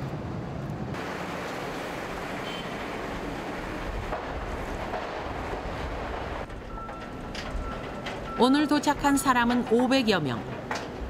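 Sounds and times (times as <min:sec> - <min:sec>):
wind and sea rushing: 0:00.0 - 0:08.4.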